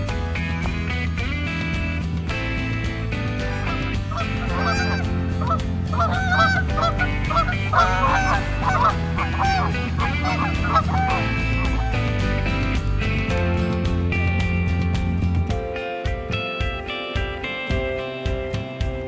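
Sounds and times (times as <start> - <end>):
guitar music: 0.0 - 19.0
geese honking: 3.2 - 12.8.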